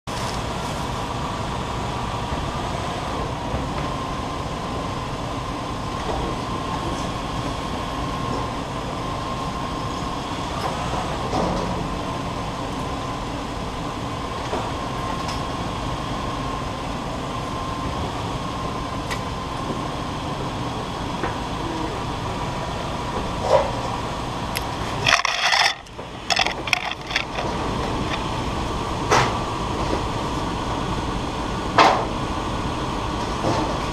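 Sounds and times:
camera handling knocks and rustling: 25.0s - 28.2s.

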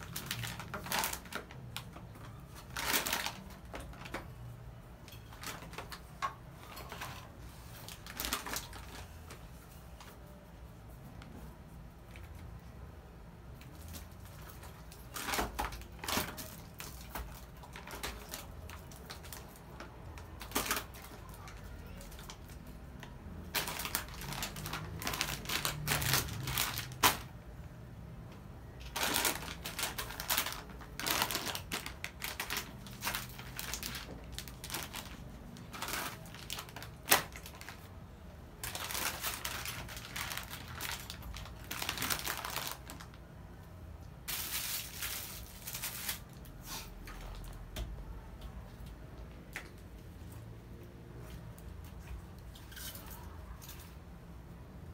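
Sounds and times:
plastic packets crinkling: 0.0s - 4.5s, 5.1s - 9.5s, 13.5s - 27.4s, 28.7s - 43.3s, 44.2s - 47.6s.

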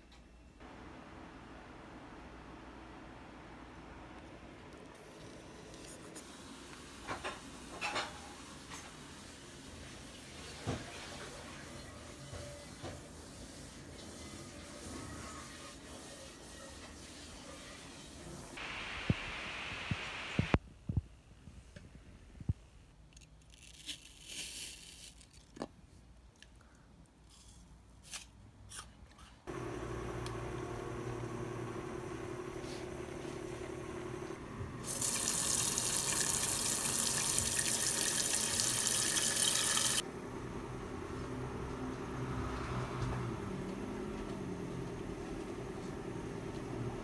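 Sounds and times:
steady low hum: 29.5s - 34.9s
tap water running into metal bowl: 34.8s - 40.0s.

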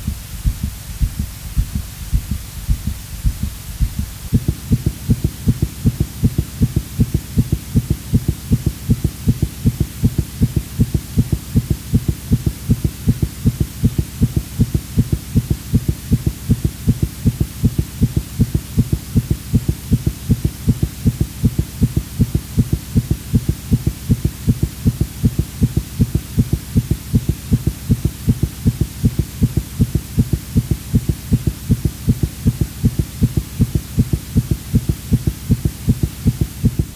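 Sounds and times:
low hum: 0.0s - 13.2s
heartbeat thumping: 0.0s - 36.9s.

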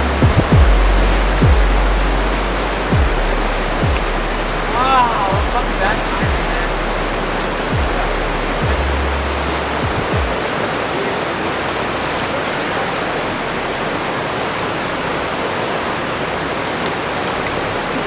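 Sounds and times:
deep falling thumps: 0.0s - 10.4s
river rushing over rapids: 0.0s - 18.0s.

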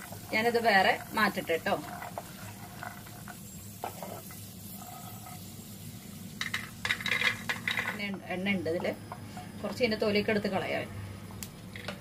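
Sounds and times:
spatula scraping peanuts in a pan: 0.0s - 5.1s
faint oil sizzle: 0.0s - 10.7s.

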